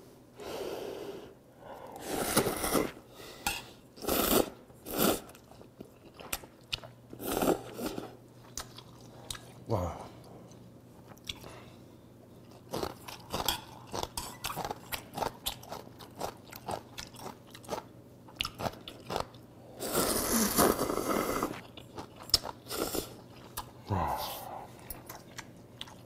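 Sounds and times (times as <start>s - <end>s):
slurping noodles: 2.0s - 3.0s, 4.0s - 5.5s, 7.2s - 8.2s, 19.8s - 21.6s
chewing with wet clicks: 5.3s - 7.0s, 8.4s - 9.6s, 10.4s - 11.6s, 12.4s - 19.5s, 21.6s - 23.8s, 24.8s - 26.0s.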